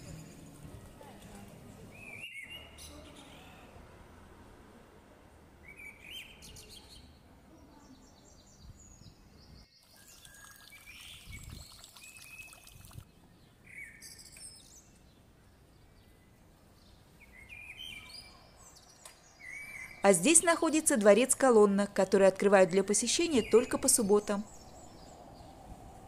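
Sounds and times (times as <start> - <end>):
low street background hum: 0.0 - 9.7, 14.8 - 26.0
faint bird chirps: 5.7 - 15.1, 17.2 - 20.1.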